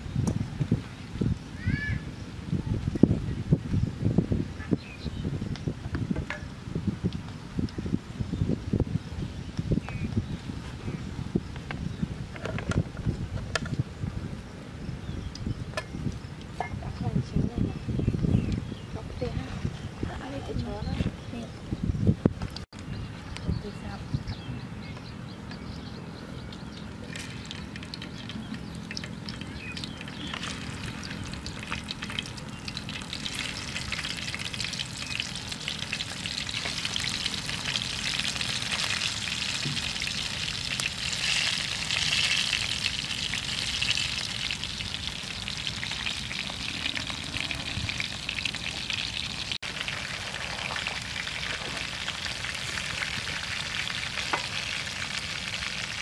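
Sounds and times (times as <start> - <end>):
food sizzling in frying pan: 28.9 - 56.0.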